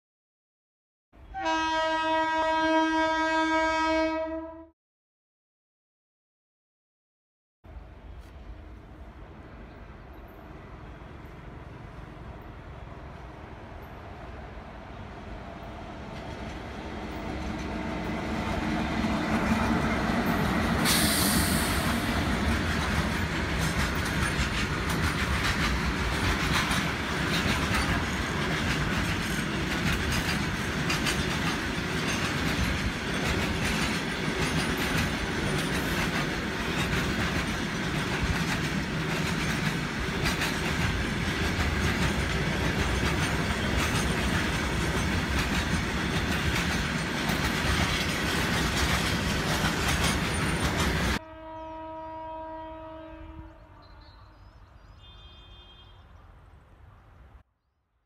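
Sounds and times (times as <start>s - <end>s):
freight train rumbling past: 1.2s - 4.6s, 7.7s - 53.8s
wheels clacking over rail joints: 22.0s - 51.2s.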